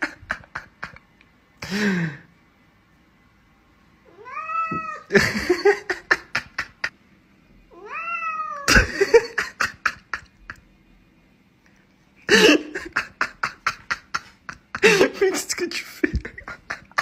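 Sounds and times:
cat meowing: 4.1s - 5.1s, 7.7s - 8.7s.

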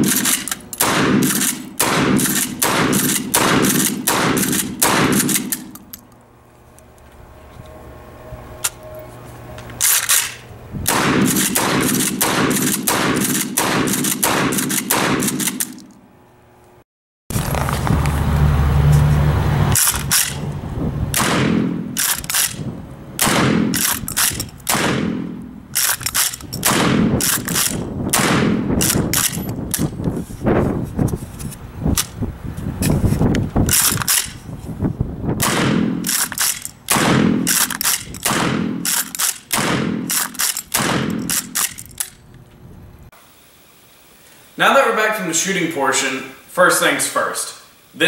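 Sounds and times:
shotgun firing: 0.0s - 5.6s, 10.9s - 15.7s, 21.2s - 22.5s, 23.2s - 23.9s, 24.7s - 25.4s, 26.6s - 29.2s, 35.4s - 36.2s, 36.9s - 41.6s.

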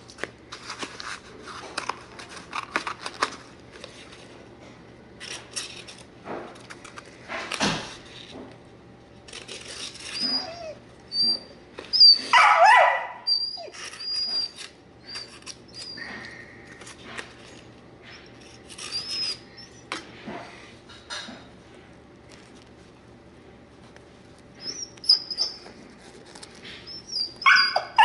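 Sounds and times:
dog whining: 9.8s - 16.4s, 18.1s - 19.9s, 24.6s - 25.8s, 26.8s - 28.0s
dog yelping: 10.1s - 16.0s, 24.6s - 25.6s, 26.9s - 28.0s.

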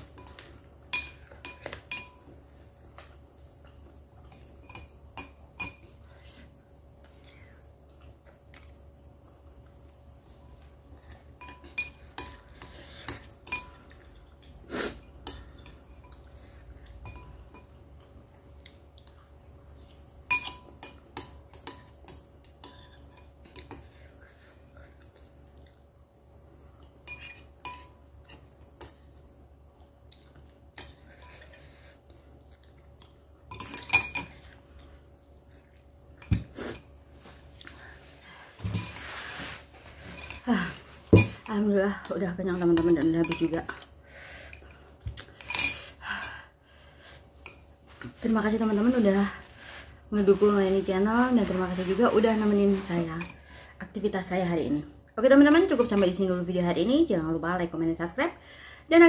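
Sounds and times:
spoon and chopsticks clinking on bowl: 0.0s - 2.3s, 11.4s - 14.6s, 17.0s - 17.8s, 20.3s - 23.9s, 27.0s - 29.0s, 33.5s - 34.6s, 41.2s - 43.9s, 44.5s - 45.9s.

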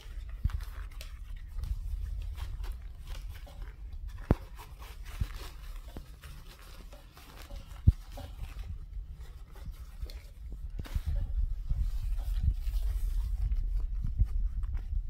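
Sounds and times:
fabric rustling: 0.0s - 15.0s.

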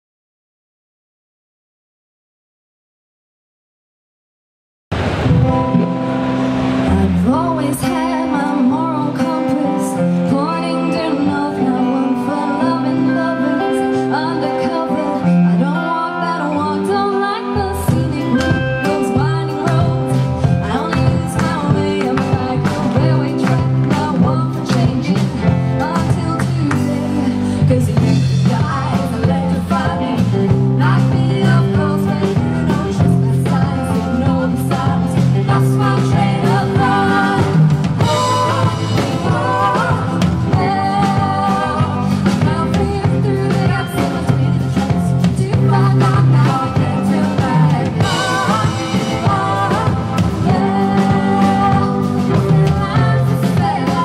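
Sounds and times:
drum kit: 4.9s - 9.5s, 17.8s - 54.0s
bass guitar: 4.9s - 54.0s
electric guitar: 4.9s - 54.0s
woman singing lead: 6.6s - 54.0s
woman singing backing vocals: 6.8s - 54.0s.

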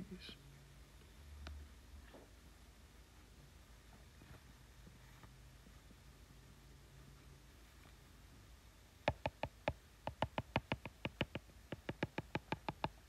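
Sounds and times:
stylus tapping on glass screen: 9.1s - 13.0s.

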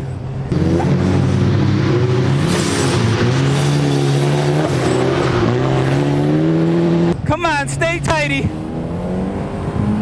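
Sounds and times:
car engine accelerating hard: 0.5s - 7.2s.

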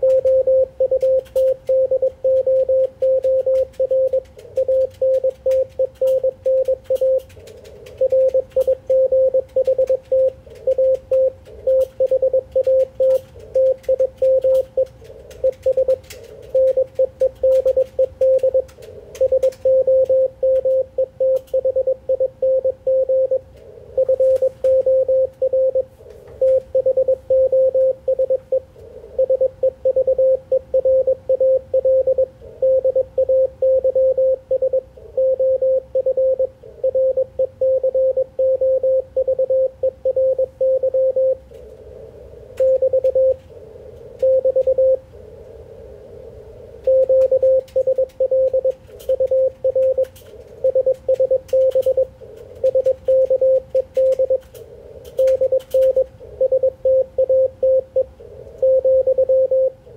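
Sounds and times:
faint clicks: 0.0s - 21.6s, 46.8s - 56.2s
morse code tone: 0.0s - 41.4s, 42.6s - 43.4s, 44.2s - 45.0s, 46.8s - 54.5s, 55.2s - 59.8s.

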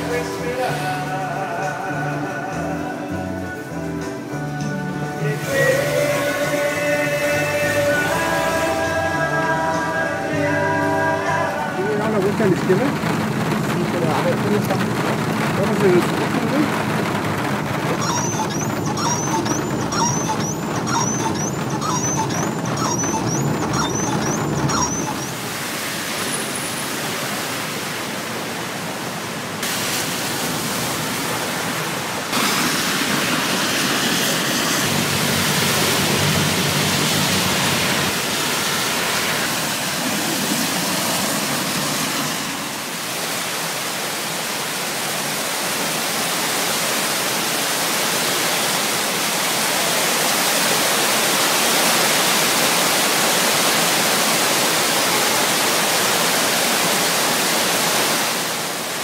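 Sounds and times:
tyres hissing through water: 0.0s - 28.3s, 29.6s - 59.0s
heavy rain on street: 0.0s - 59.0s.

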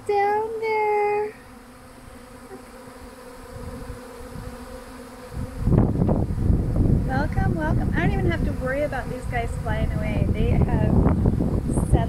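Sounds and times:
honey bee swarm buzzing: 0.0s - 12.0s
low rumble on microphone: 5.3s - 12.0s.

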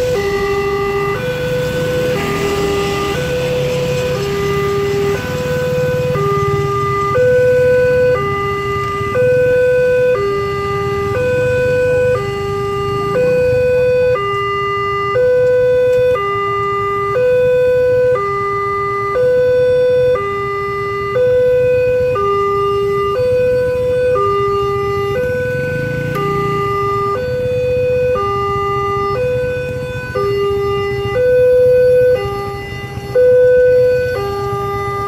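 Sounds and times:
two-tone crossing alarm: 0.0s - 35.0s
motorcycle engines idling: 1.5s - 9.0s, 21.9s - 35.0s.

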